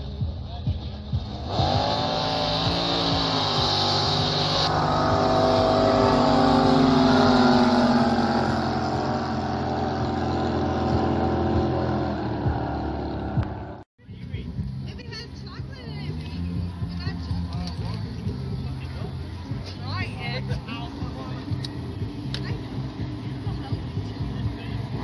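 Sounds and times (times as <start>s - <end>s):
jet boat engines at high revs: 1.4s - 13.8s.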